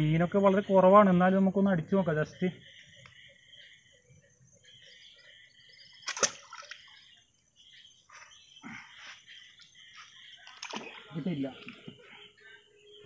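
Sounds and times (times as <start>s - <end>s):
faint chirping: 0.0s - 13.0s
sharp snap and splash: 6.0s - 6.9s, 10.4s - 11.0s
soft splash in water: 6.0s - 7.0s, 10.4s - 11.1s.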